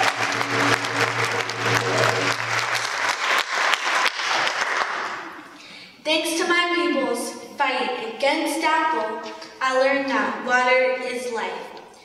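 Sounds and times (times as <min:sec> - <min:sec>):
low steady hum: 0:00.0 - 0:03.4
audience applauding: 0:00.0 - 0:05.5.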